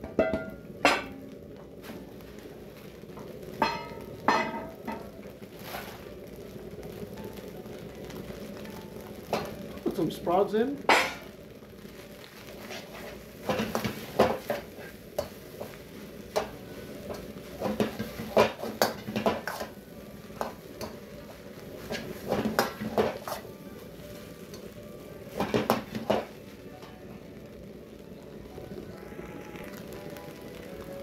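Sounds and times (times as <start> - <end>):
food sizzling: 0.0 - 31.0
metal ladle scraping a wok: 17.9 - 19.8.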